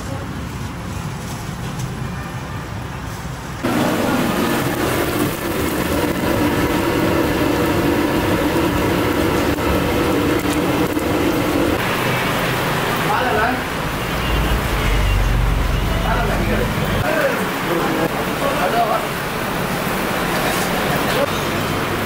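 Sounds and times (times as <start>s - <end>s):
deep-frying sizzle in hot oil: 3.6s - 22.0s.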